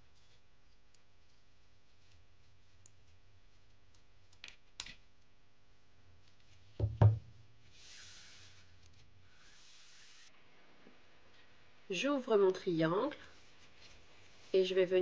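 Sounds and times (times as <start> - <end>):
soft rustle of paper: 0.0 - 6.8, 7.6 - 10.3, 12.6 - 15.0
knocks on tabletop: 6.8 - 7.2.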